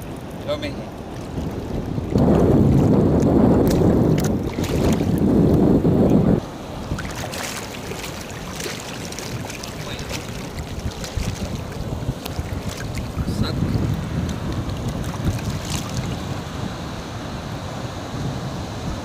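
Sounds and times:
wind buffeting microphone: 0.0 - 19.0
water sloshing around legs: 3.6 - 5.2, 6.8 - 16.2.

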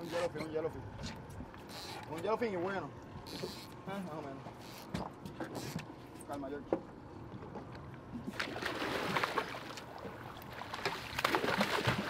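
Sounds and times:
water splashing from thrashing fish: 8.3 - 12.0.

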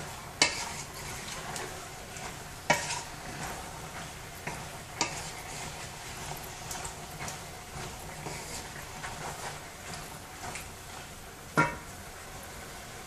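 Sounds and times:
hot pan sizzling: 0.0 - 13.0
wooden spoon stirring in a pan: 0.0 - 13.0
spoon knocking against pan: 11.6 - 11.8.

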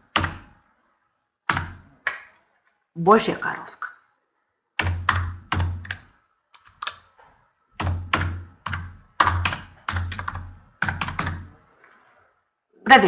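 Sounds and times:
computer keyboard typing: 4.8 - 7.2, 7.8 - 11.6.

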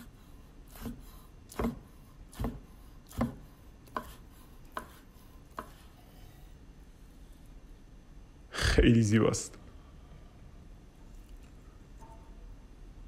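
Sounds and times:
knife slicing on wooden board: 0.7 - 6.0.

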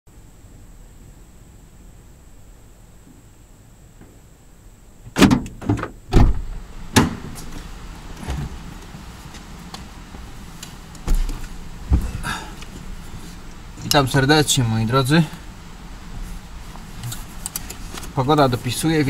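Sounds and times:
sharp clunks and knocks: 5.1 - 7.5, 11.0 - 12.2.

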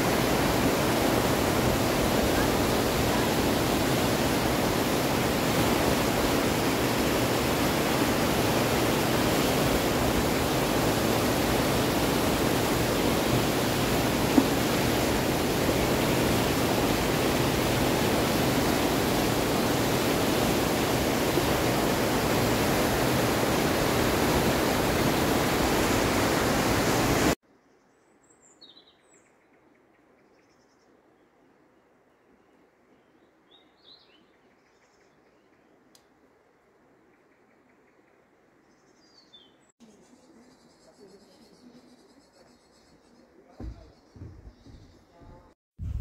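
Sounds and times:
river rushing: 0.0 - 27.4
faint bird chirps: 37.0 - 45.4.

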